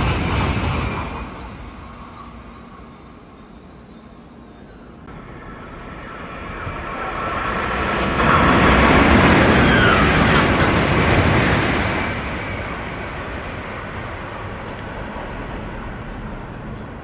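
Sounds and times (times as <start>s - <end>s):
train passing at speed: 0.0s - 17.0s.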